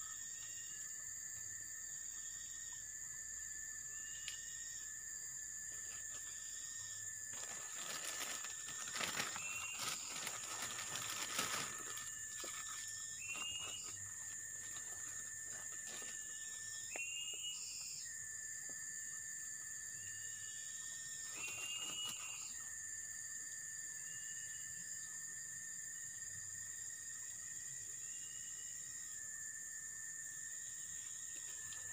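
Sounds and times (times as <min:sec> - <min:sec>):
insect tone with rising note: 0:00.0 - 0:31.9
insects droning high: 0:00.0 - 0:31.9
vegetation rustling and crackling: 0:07.3 - 0:16.2.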